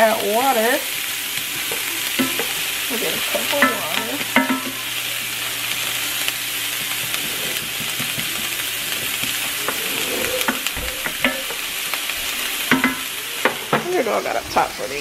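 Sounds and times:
onions sizzling in oil: 0:00.0 - 0:15.0
spatula scraping pan: 0:01.5 - 0:04.9, 0:06.7 - 0:14.1.

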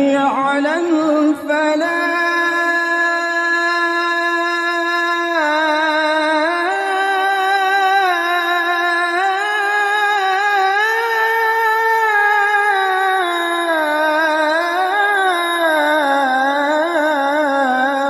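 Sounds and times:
person chanting call to prayer: 0:00.0 - 0:18.0.

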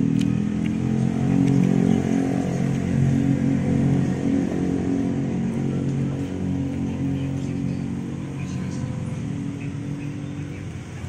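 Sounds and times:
vehicle engine humming: 0:00.0 - 0:11.0.

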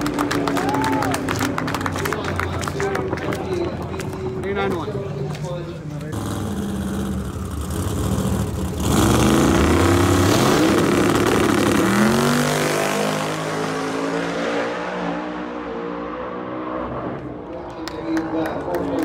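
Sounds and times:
drag racing car accelerating: 0:06.0 - 0:17.6.

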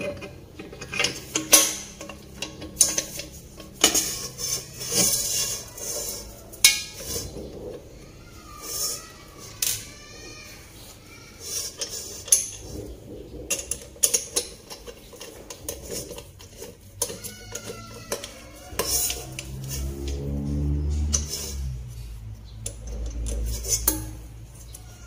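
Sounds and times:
metal clicks and clinks: 0:00.0 - 0:07.7
screw scraping: 0:00.0 - 0:25.0.

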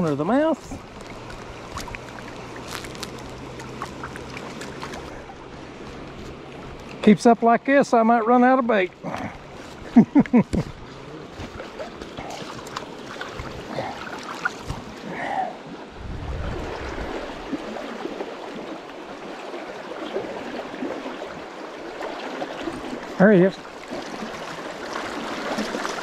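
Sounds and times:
low rumble: 0:15.9 - 0:17.4.

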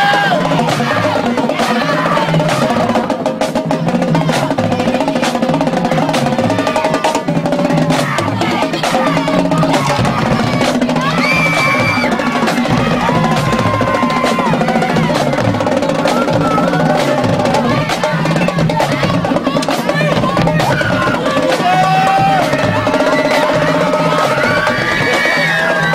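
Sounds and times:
pitched bass drums: 0:00.0 - 0:25.9
snare drum rolls: 0:00.0 - 0:25.9.

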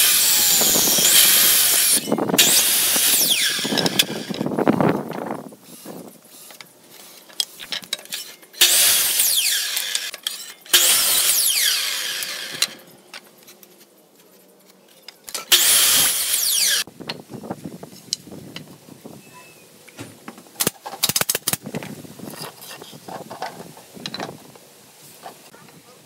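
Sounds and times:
miter saw cutting wood: 0:00.0 - 0:04.5, 0:08.2 - 0:12.9, 0:15.4 - 0:16.9.

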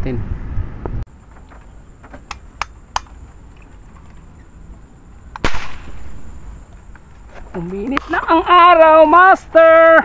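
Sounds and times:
air gun shot: 0:05.4 - 0:06.3.

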